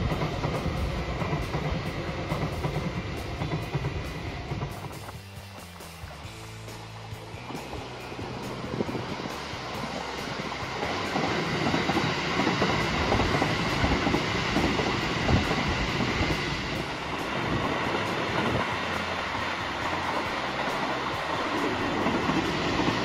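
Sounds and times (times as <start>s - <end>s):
train wheels on rails: 0.0s - 23.0s.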